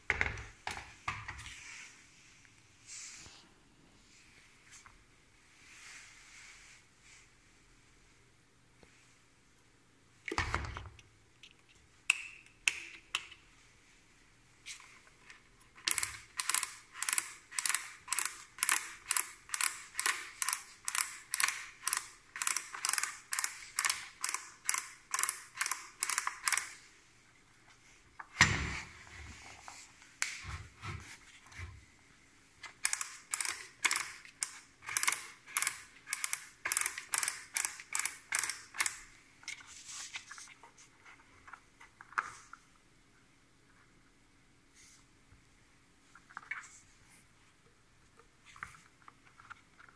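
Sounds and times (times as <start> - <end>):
rapid mechanical clicking: 32.8 - 39.0.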